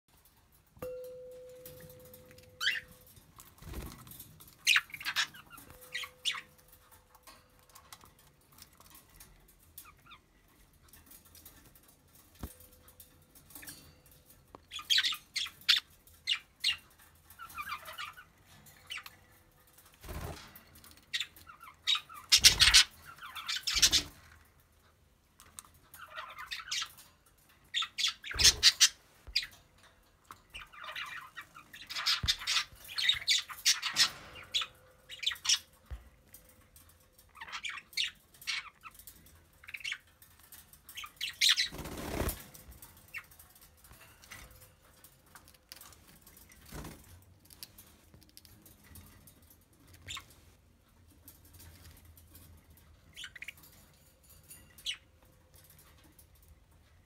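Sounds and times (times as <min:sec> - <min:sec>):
wings fluttering: 0:01.8 - 0:06.4, 0:19.9 - 0:21.3, 0:41.3 - 0:42.9, 0:46.4 - 0:47.1
budgerigars chattering and squawking: 0:02.6 - 0:02.9, 0:04.6 - 0:06.6, 0:21.1 - 0:24.2, 0:27.8 - 0:29.5, 0:30.6 - 0:35.7.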